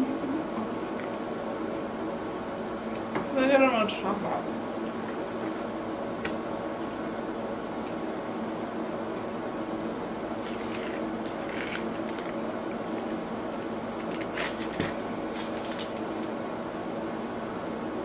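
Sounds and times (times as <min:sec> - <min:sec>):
room hum: 0:00.0 - 0:18.0
eating and drinking noises: 0:10.3 - 0:16.3.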